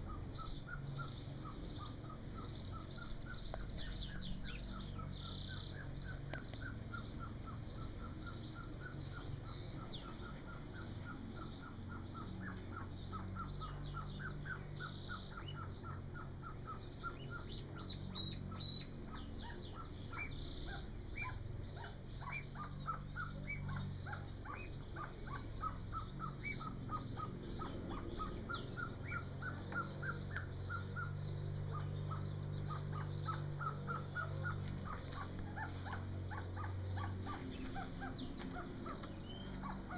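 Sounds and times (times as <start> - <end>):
chicks peeping: 0.0 - 39.9.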